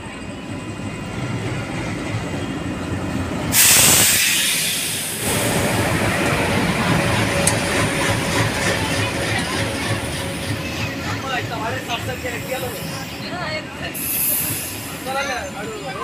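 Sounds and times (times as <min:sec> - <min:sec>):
diesel train passing: 0:00.0 - 0:16.0
loud hiss: 0:03.5 - 0:06.0, 0:13.9 - 0:15.1.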